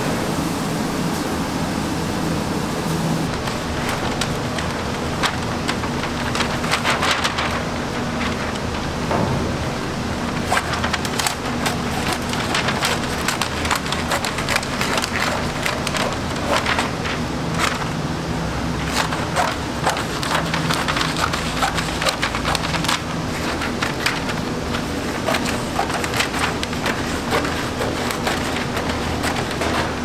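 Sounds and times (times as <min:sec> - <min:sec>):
paper crackling and rustling: 0:03.2 - 0:30.0
scissors cutting paper: 0:10.4 - 0:18.0, 0:18.8 - 0:30.0.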